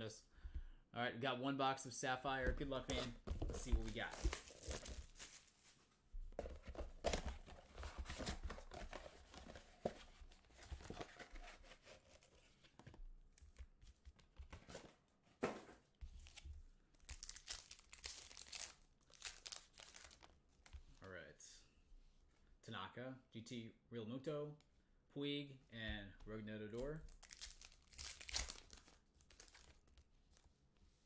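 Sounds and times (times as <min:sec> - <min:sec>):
wrapping rustling and ripping: 0:17.1 - 0:20.3, 0:27.1 - 0:29.9.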